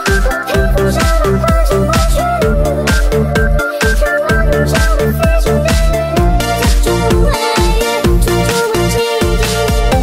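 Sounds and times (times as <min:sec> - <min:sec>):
steady kick drum: 0:00.0 - 0:10.0.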